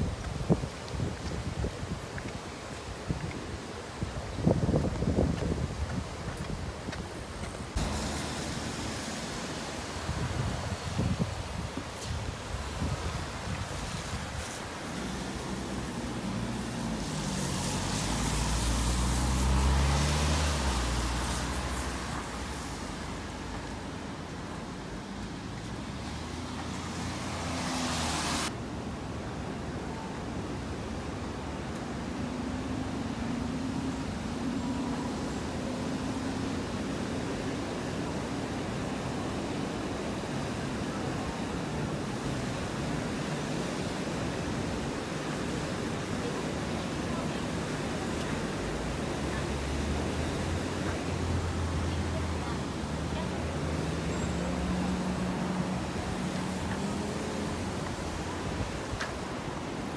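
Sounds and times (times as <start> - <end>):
wind on microphone: 0.0 - 8.0, 9.0 - 28.5
steady traffic noise: 0.0 - 59.9
car passing: 14.5 - 23.9, 25.9 - 28.5, 43.3 - 58.4.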